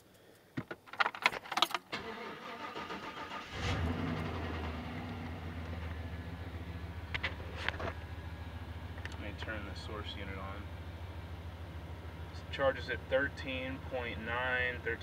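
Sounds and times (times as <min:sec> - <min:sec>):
car keys jangling: 0:00.1 - 0:03.3
truck engine idling: 0:02.0 - 0:15.0.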